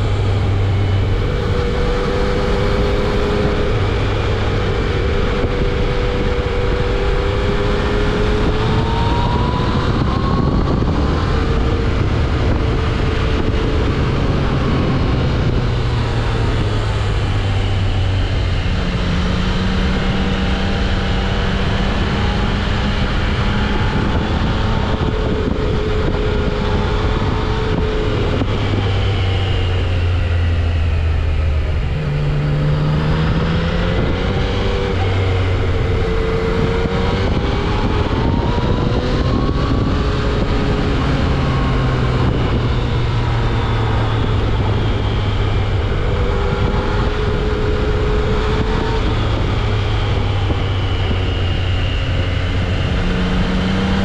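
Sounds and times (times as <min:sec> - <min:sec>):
motorcycle engine revving: 0:00.0 - 0:54.0
wind rushing on microphone: 0:00.0 - 0:54.0.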